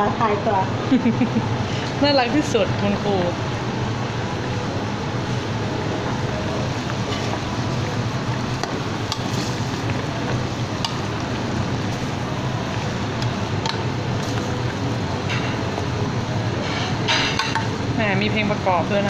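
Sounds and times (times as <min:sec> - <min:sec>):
curry bubbling in pot: 0:04.4 - 0:17.7.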